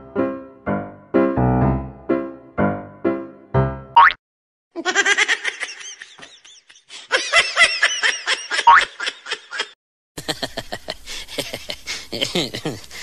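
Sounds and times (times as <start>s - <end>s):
person laughing: 4.8s - 13.0s.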